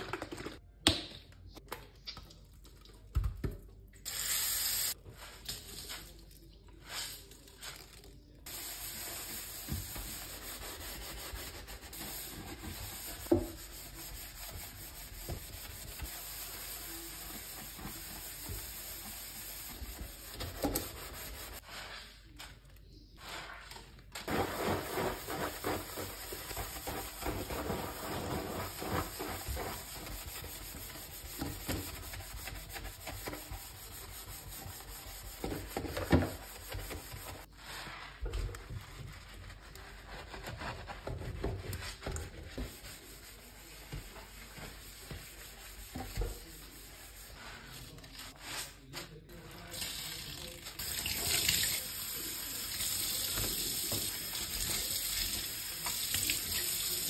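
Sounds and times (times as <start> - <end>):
sponge scrubbing steel sink: 8.5 - 22.2, 23.2 - 57.0.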